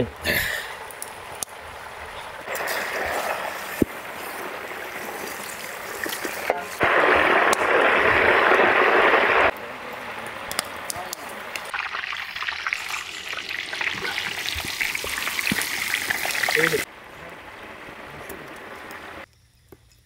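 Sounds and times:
food sizzling in hot oil: 2.5s - 9.5s, 11.6s - 16.9s.

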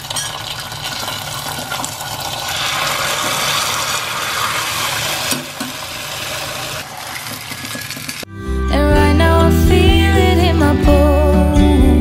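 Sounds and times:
hot ghee sizzling: 0.0s - 8.3s.

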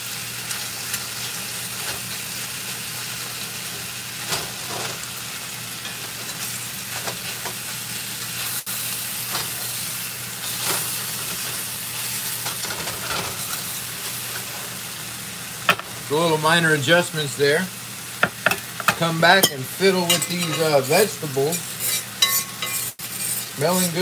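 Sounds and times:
steaks sizzling in hot oil: 0.0s - 24.0s
metal spatula scraping a pan: 19.4s - 24.0s.

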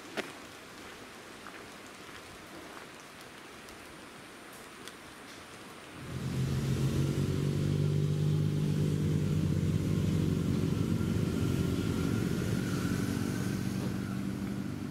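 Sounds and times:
vehicle engine humming: 6.0s - 14.9s.

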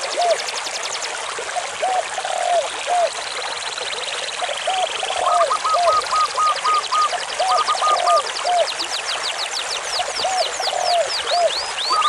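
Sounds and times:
birds calling: 4.4s - 12.0s.

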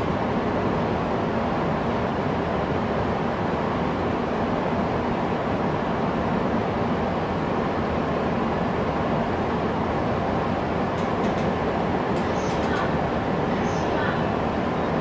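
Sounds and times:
train wheels rumbling on rail: 5.8s - 15.0s.

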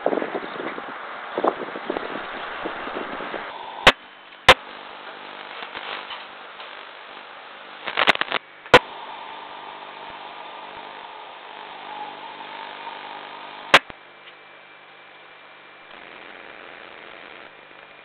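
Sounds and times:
steady microphone hiss: 0.0s - 18.0s
sharp loud clicks: 7.8s - 8.9s, 11.7s - 14.0s.

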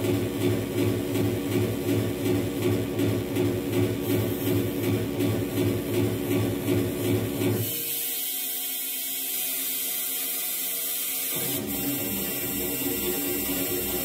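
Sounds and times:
low pulsing electronic beat: 11.4s - 14.0s.

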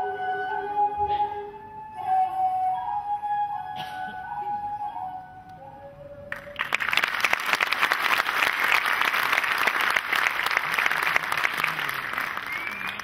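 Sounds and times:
flute music: 0.0s - 7.2s
audience applause: 6.3s - 13.0s.

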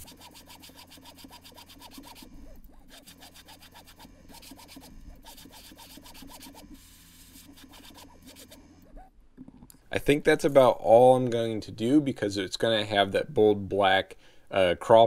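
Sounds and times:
airbrush spraying: 0.0s - 8.6s
steady low hum: 0.0s - 14.9s.

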